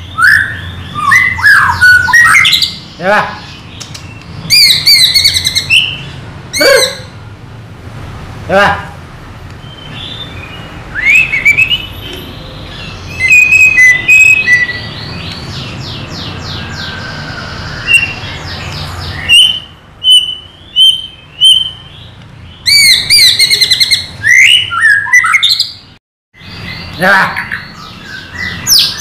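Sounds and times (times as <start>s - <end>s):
bird singing whistled phrases: 0.1s - 2.8s, 9.6s - 15.3s, 19.2s - 21.9s, 22.7s - 25.8s.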